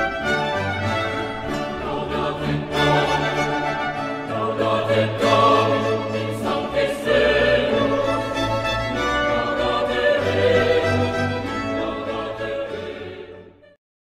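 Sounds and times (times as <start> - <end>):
choir singing held chords: 0.0 - 13.8.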